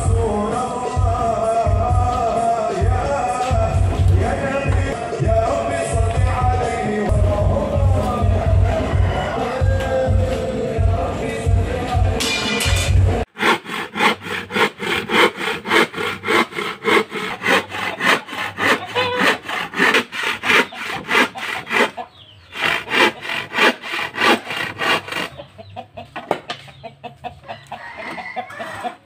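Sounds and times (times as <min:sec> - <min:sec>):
hand tool strokes on plywood: 0:13.3 - 0:25.3.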